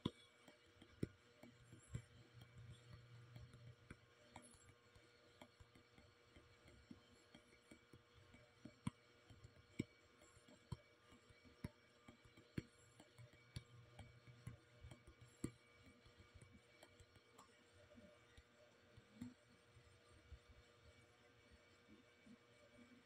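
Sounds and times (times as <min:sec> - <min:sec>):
faint steady hum: 0:00.0 - 0:23.0.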